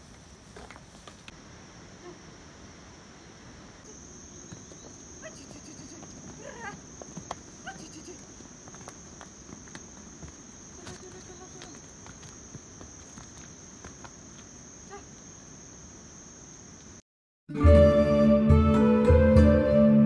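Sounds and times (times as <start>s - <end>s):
footsteps on stone path: 0.0s - 1.4s, 4.4s - 15.2s
insects droning: 0.0s - 17.0s
background music: 17.5s - 20.0s.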